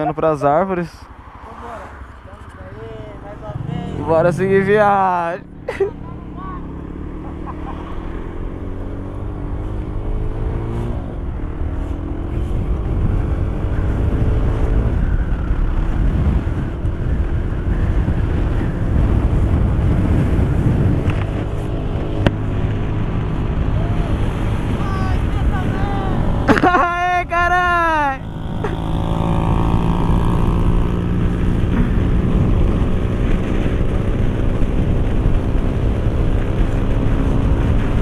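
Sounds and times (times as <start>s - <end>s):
wind rushing over microphone: 0.0s - 38.0s
motorcycle engine accelerating: 2.3s - 38.0s.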